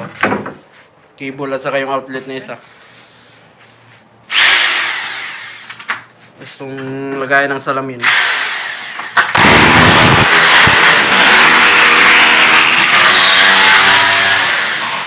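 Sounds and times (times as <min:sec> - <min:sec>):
power tool running: 0:04.3 - 0:05.8, 0:08.0 - 0:15.0.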